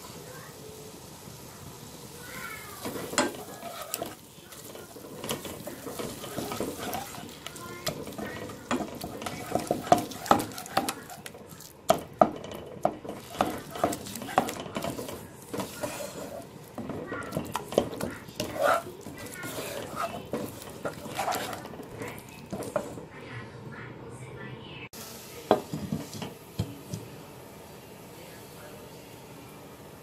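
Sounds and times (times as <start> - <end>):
light sizzle: 0.0 - 23.9, 24.9 - 30.0
spatula scraping frying pan: 2.4 - 23.1, 25.7 - 26.4.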